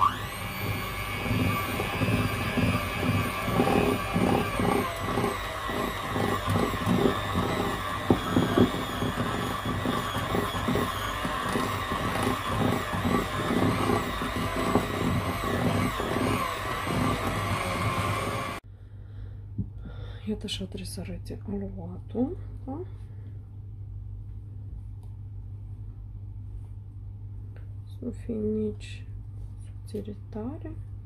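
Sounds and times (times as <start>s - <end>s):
electric hand mixer running: 0.0s - 18.6s.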